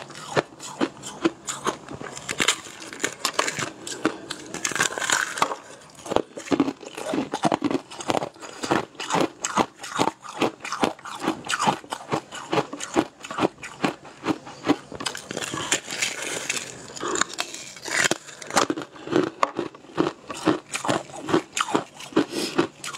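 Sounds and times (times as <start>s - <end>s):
crunching and chewing: 0.0s - 22.9s.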